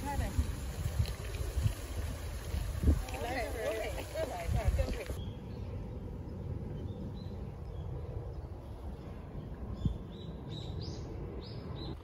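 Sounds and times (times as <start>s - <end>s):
steady low rumble: 4.1s - 12.0s.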